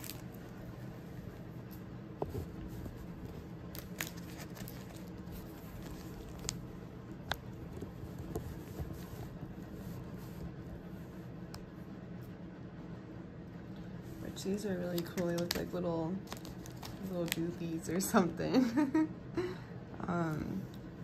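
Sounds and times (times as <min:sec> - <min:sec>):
plastic bag crinkling: 0:00.0 - 0:00.6, 0:03.6 - 0:06.7, 0:15.0 - 0:17.6
faint steady hum: 0:00.0 - 0:21.0.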